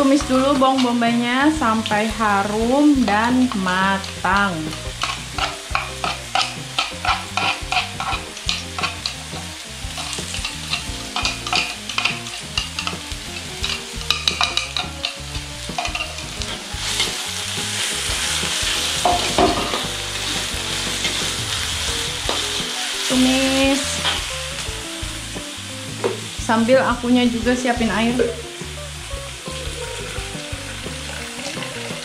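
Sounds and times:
spatula scraping and tapping pan: 0.0 - 22.8
onion sizzling in hot oil: 0.0 - 32.0.

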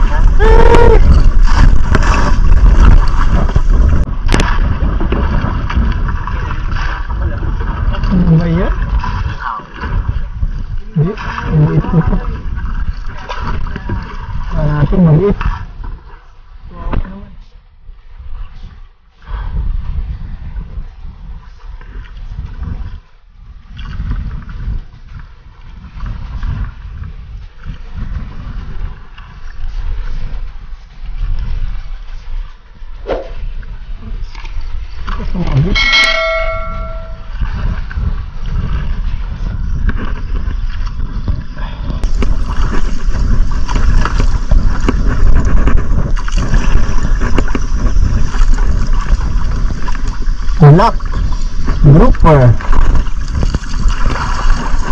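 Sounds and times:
water splashing at hull: 0.0 - 17.2, 20.6 - 54.9
wind buffeting microphone: 0.0 - 54.9.

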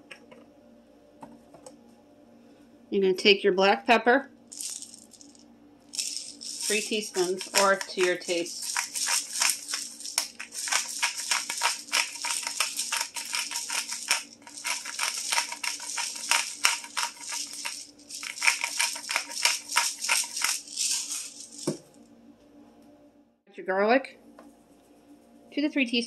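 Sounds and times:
pepper grinder ratcheting: 4.6 - 21.8.

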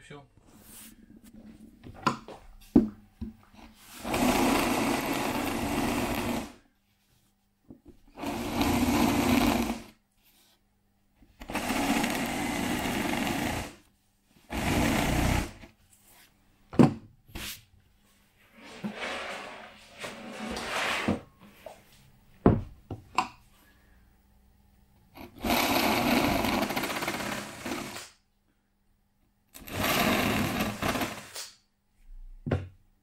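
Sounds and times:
cordless drill boring into wood: 4.0 - 6.6, 8.2 - 9.9, 11.4 - 13.8, 14.5 - 15.6, 25.3 - 28.1, 29.6 - 31.4.

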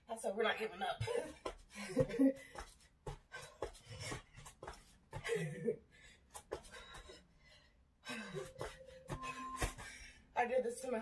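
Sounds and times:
feet tapping on exercise mat: 0.9 - 7.3, 8.1 - 10.0
effortful breathing: 1.0 - 10.4.

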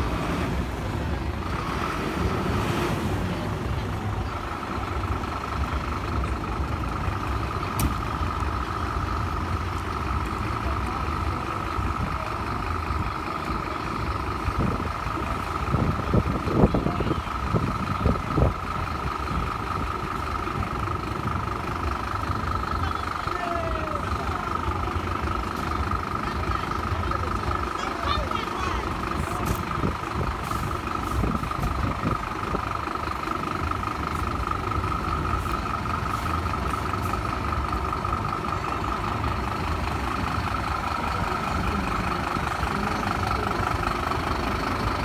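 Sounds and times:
diesel engines idling: 0.0 - 45.0.

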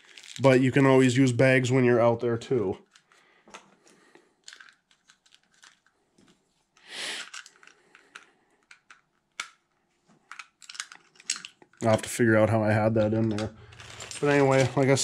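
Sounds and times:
plastic rustling: 2.8 - 8.2, 13.1 - 15.0.

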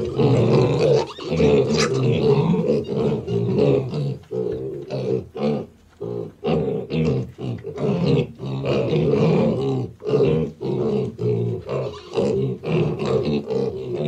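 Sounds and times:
piglets grunting and squealing: 0.0 - 14.0.

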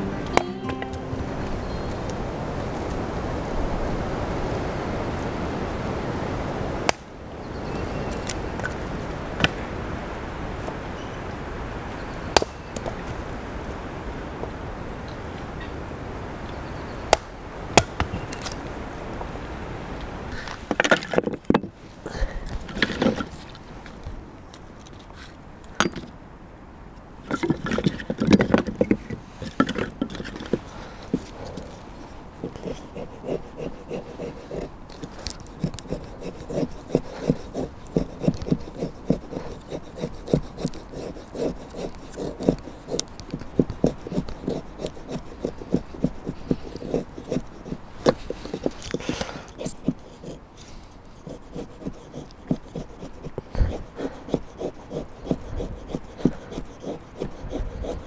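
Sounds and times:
wood and knife handled: 27.3 - 54.5
knife shaving wood: 29.4 - 58.0.

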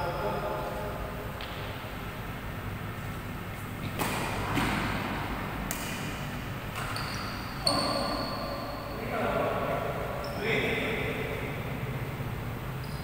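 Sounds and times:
racket hitting shuttlecock: 3.8 - 7.0.

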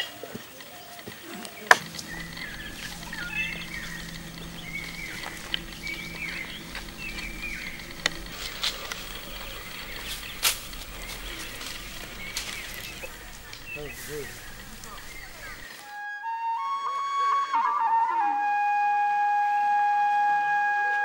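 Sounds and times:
birds chirping: 0.0 - 16.0
low steady hum: 1.8 - 15.7.

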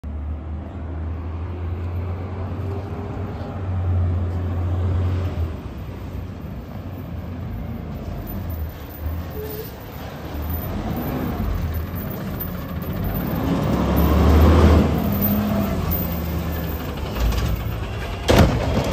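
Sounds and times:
garbage truck engine rumbling: 6.1 - 18.9.

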